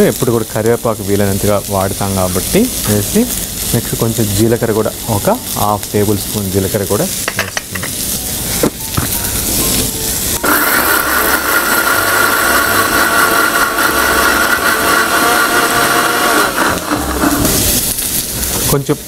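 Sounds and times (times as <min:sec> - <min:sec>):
mixer grinder whining: 0:10.4 - 0:17.8.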